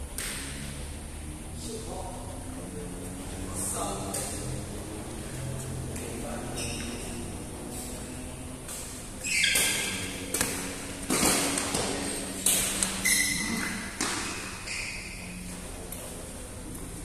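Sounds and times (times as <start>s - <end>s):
rackets hitting shuttlecock: 0.1s - 0.6s, 8.6s - 16.2s
shoes squeaking on court: 6.4s - 7.3s, 8.7s - 16.2s.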